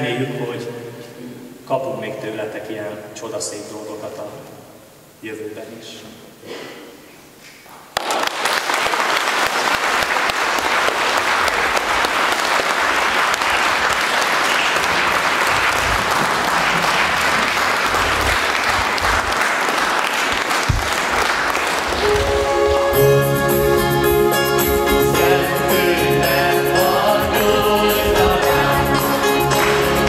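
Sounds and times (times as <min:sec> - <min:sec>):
crowd applauding: 0:07.9 - 0:25.4, 0:26.9 - 0:30.0.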